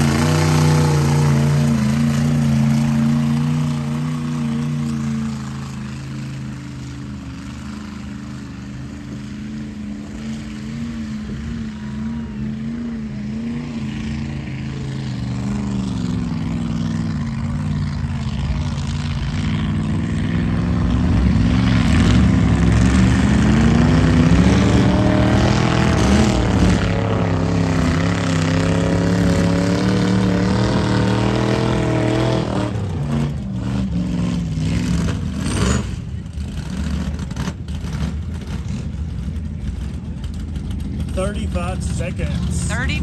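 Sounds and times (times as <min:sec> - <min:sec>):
engine revving hard: 0:20.9 - 0:35.9.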